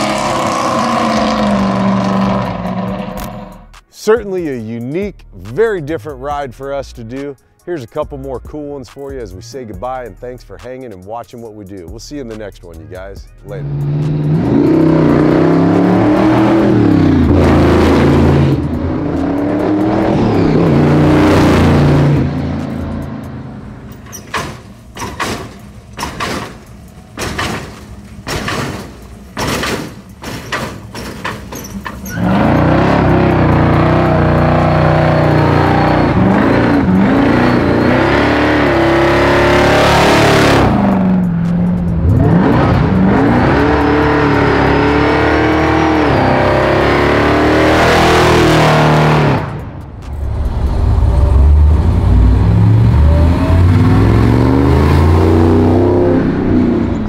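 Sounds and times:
pickup engine revving in burnout: 0:00.0 - 0:03.6, 0:13.6 - 0:23.6, 0:32.0 - 0:57.0
car engine revving by: 0:00.0 - 0:03.7, 0:13.5 - 0:23.9, 0:32.1 - 0:57.0
hydraulics clacking and thumping: 0:22.3 - 0:35.4.

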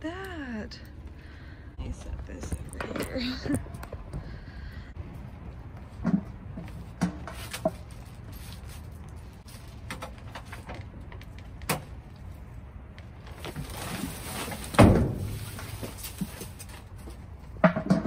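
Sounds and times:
steady low rumble: 0:00.0 - 0:07.0.

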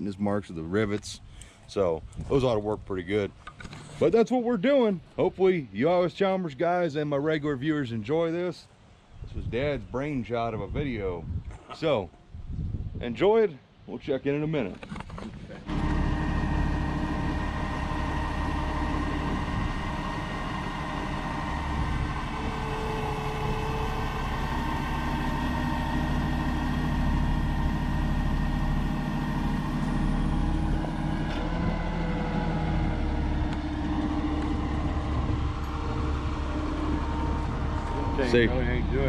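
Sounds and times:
engine idling: 0:15.6 - 0:39.0.

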